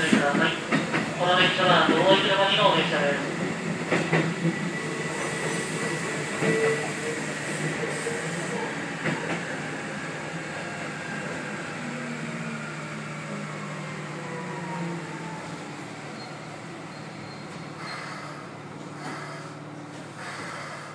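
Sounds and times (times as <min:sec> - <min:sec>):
electric train braking: 0:16.1 - 0:19.6.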